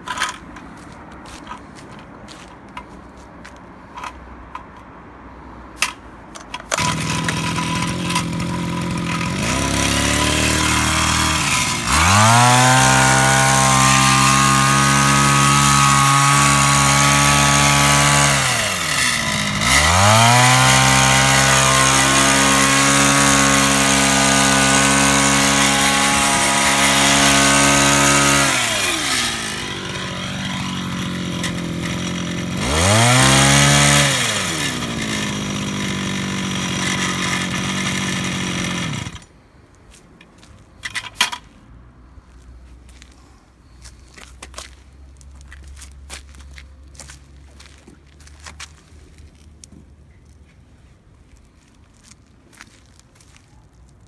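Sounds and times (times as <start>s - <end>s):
starter clicks: 5.8s - 9.6s
hedge trimmer engine revving: 6.6s - 39.3s.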